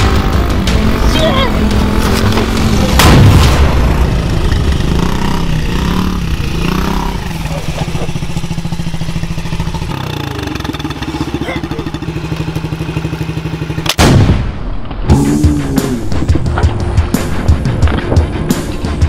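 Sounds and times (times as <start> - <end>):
dirt bike engine idling: 0.0 - 14.0.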